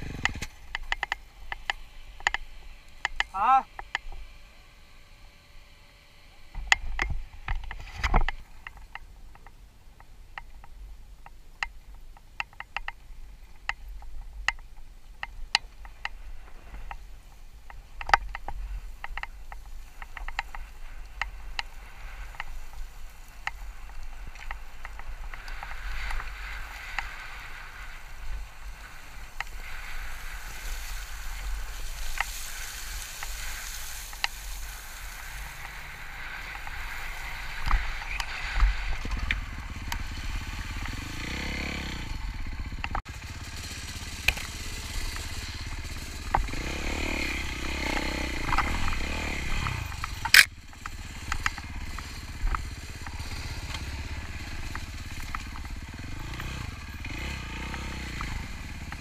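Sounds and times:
stones clicking and bike rattling: 0.0s - 4.4s, 6.4s - 59.0s
tyres hissing on gravel: 19.8s - 41.9s.

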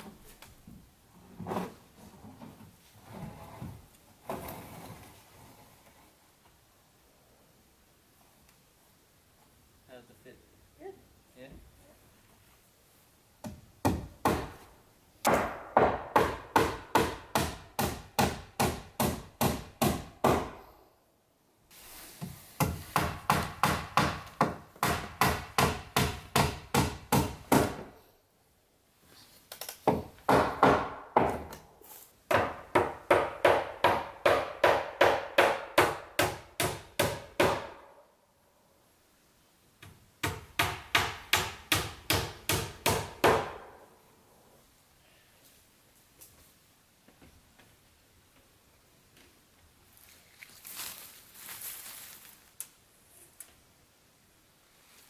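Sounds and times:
hammer nailing wooden boards: 13.4s - 14.6s, 15.2s - 20.6s, 22.6s - 28.0s, 29.8s - 31.6s, 32.3s - 38.0s, 40.2s - 43.8s.

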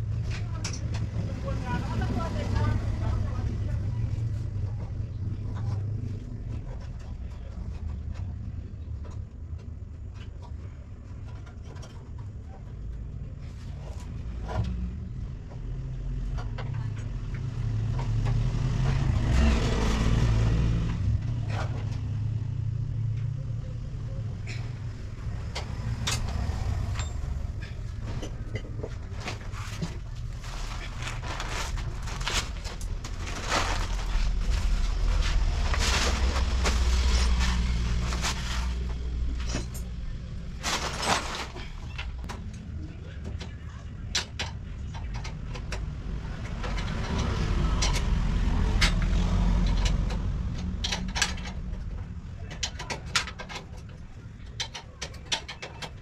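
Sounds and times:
auto-rickshaw engine rumble: 0.0s - 56.0s
metallic clicks and knocks: 43.3s - 56.0s.

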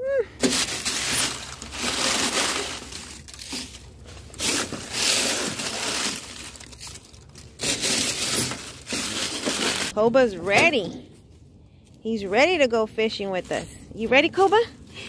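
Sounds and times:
dry leaves rustling and crunching: 0.4s - 10.0s.

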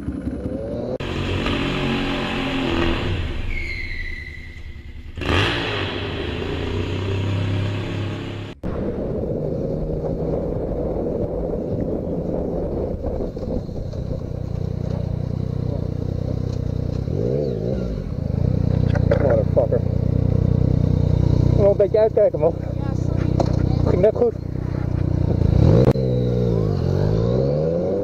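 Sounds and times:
motorcycle engine running: 0.0s - 3.4s, 9.3s - 28.0s
wind and road noise: 0.0s - 28.0s.

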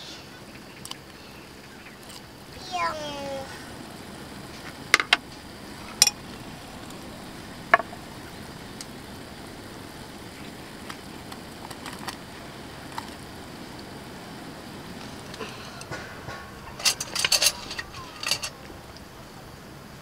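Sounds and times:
soup boiling and bubbling: 1.9s - 16.3s.

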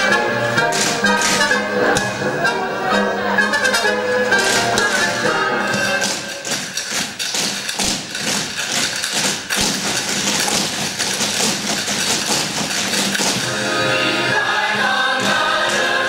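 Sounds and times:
feet stamping on stage floor: 4.4s - 13.5s.

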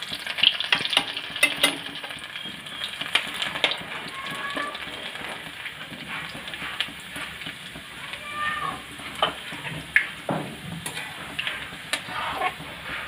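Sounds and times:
garlic sizzling in oil: 0.0s - 13.0s.

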